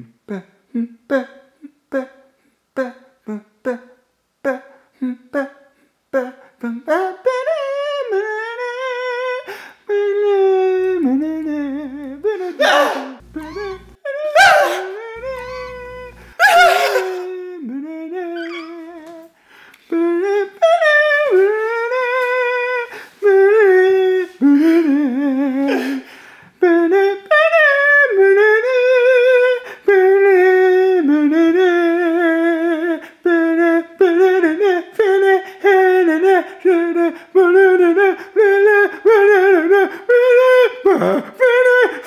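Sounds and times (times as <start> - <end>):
person singing wordless melody: 0.0 - 42.0
loud vocal cry: 12.5 - 17.4.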